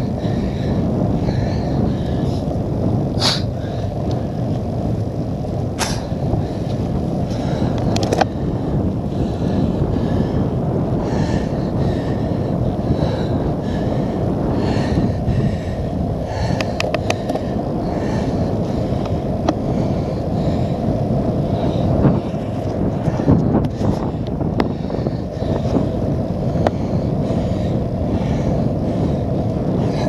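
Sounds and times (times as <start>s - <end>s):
bike tyres rolling on wet tarmac: 0.0s - 30.0s
wind rumbling on microphone: 0.0s - 30.0s
bike rattling clicks: 3.2s - 8.5s, 16.4s - 17.6s.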